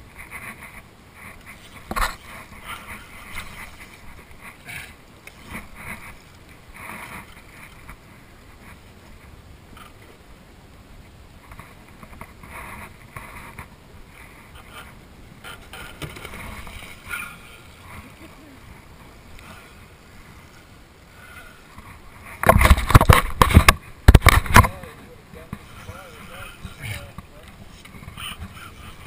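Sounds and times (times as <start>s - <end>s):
water and wind wash: 0.0s - 29.0s.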